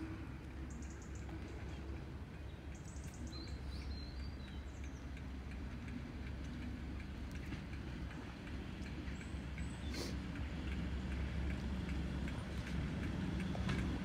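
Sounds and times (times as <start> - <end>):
distant diesel locomotive rumble: 0.0 - 14.0.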